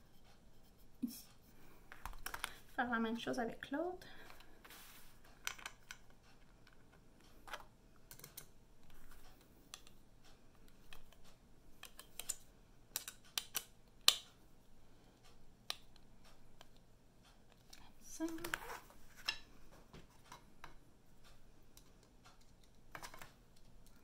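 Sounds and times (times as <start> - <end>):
wooden strips clicking and knocking: 19.2 - 20.8, 21.8 - 24.0.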